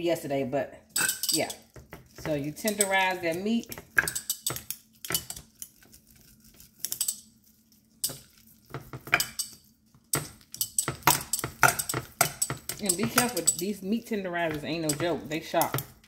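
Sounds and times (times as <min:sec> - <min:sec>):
meat tenderizer pounding steaks: 0:10.2 - 0:13.6.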